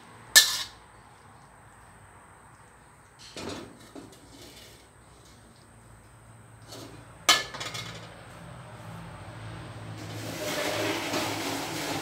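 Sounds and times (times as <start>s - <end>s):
metal spatula scraping wok: 10.0s - 12.0s.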